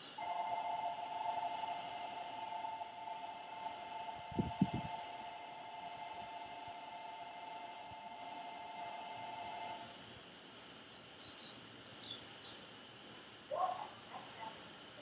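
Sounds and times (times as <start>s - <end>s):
small birds chirping: 10.8s - 12.8s.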